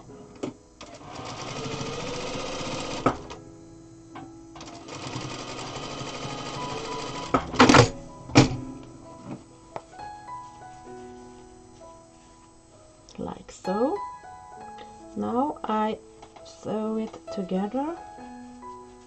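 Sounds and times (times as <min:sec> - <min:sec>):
sewing machine stitching: 0:00.8 - 0:03.3, 0:04.6 - 0:07.9.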